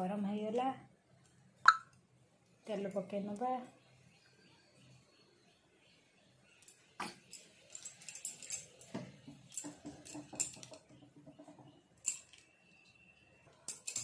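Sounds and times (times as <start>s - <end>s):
small clicks and clinks: 6.6s - 12.7s, 13.6s - 14.0s.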